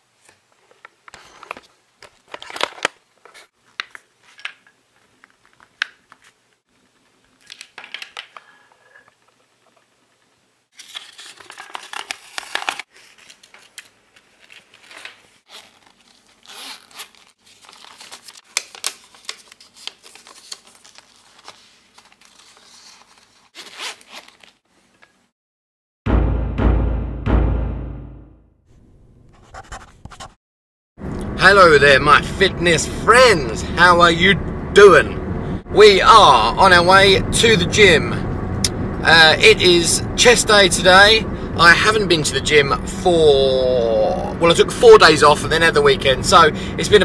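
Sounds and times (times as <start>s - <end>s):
hands rustling paper: 10.8s - 24.6s.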